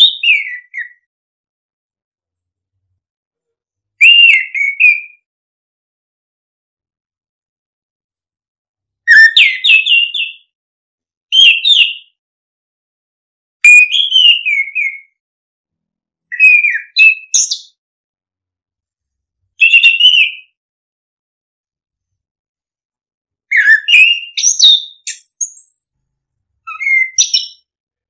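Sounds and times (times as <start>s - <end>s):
thrush singing whistled phrases: 0.0s - 1.1s, 4.0s - 5.3s, 9.1s - 10.5s, 11.3s - 12.2s, 13.6s - 15.2s, 16.3s - 17.8s, 19.6s - 20.6s, 23.5s - 25.9s, 26.7s - 27.7s.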